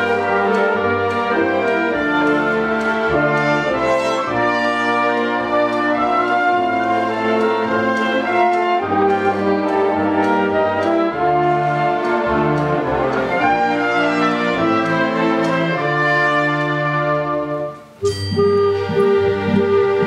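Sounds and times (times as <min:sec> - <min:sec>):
orchestra playing sustained chords: 0:00.0 - 0:20.0.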